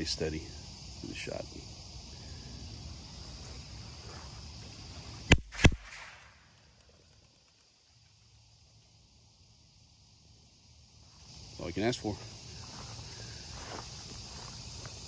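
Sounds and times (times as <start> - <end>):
insects buzzing: 0.0 - 15.0
gunshots: 5.3 - 6.3.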